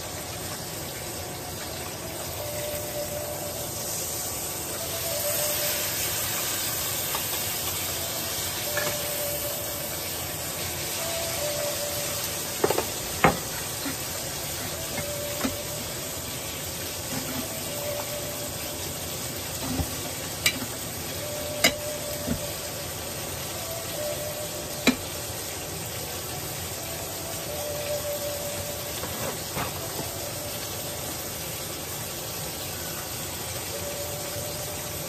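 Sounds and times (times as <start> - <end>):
steak sizzling in a pan: 0.0 - 35.0
utensils and dishes clinking: 4.7 - 9.9, 10.8 - 22.6, 23.7 - 25.2, 27.5 - 30.4.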